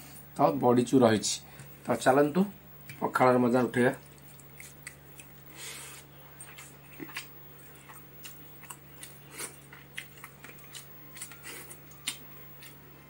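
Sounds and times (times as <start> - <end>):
steady low hum: 0.0 - 13.0
eating clicks and mouth smacks: 4.0 - 5.5, 6.4 - 12.8.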